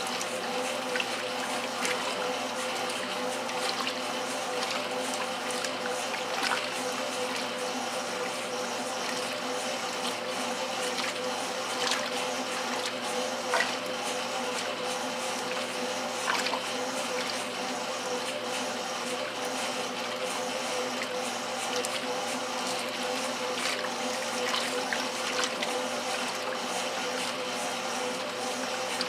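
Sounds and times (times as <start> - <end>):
water splashes: 0.0 - 9.4, 10.0 - 14.7, 15.4 - 17.5, 22.7 - 26.7
washing machine hum: 0.0 - 29.0
water sloshing in washer: 0.0 - 29.0.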